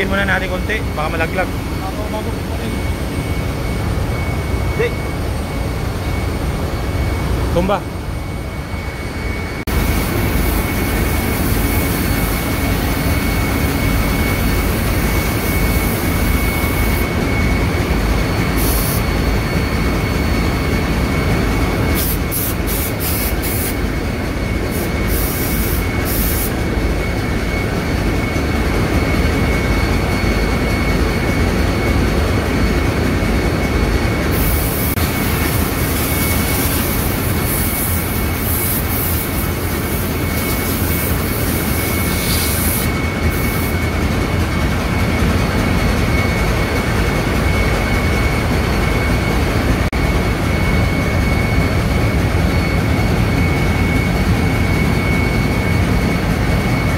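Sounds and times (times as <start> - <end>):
constant high whine: 0.0 - 56.9
engine room machinery: 0.0 - 56.9.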